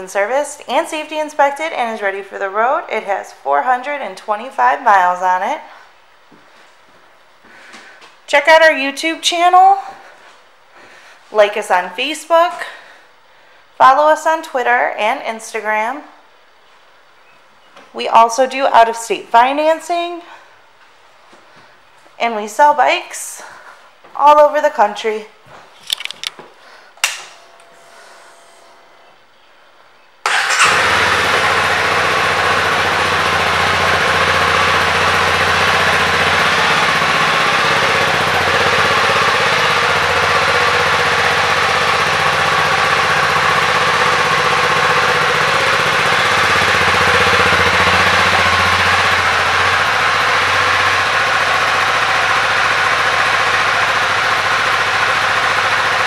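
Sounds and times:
motorcycle engine starting and idling: 27.0s - 29.5s, 30.2s - 56.0s.

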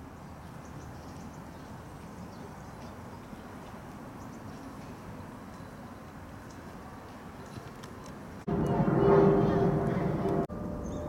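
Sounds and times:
steady low rumble: 8.4s - 11.0s
distant bird chirps: 10.0s - 11.0s.

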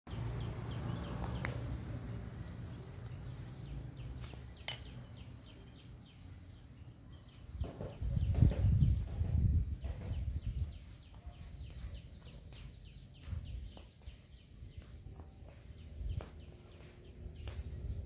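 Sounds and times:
small birds chirping: 0.1s - 18.0s.

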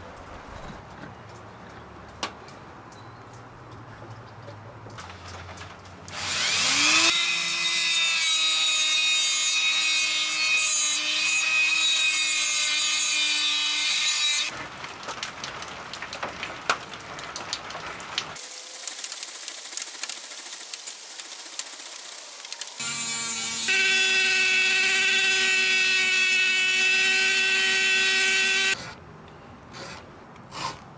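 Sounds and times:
rotary tool whining: 22.7s - 28.8s.

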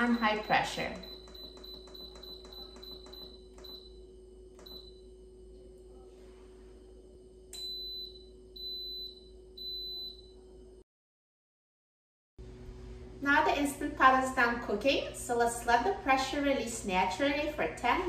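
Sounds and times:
longer beeps: 0.0s - 4.0s, 4.6s - 5.1s, 7.6s - 10.4s.

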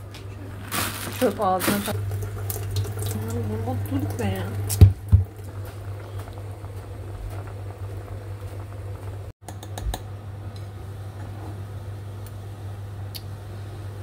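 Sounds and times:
water boiling in a pot: 0.5s - 9.3s.

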